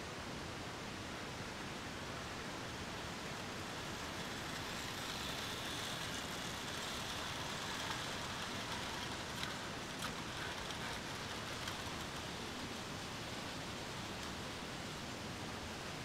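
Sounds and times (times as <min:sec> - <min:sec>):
model train whirring on track: 0:01.1 - 0:15.8.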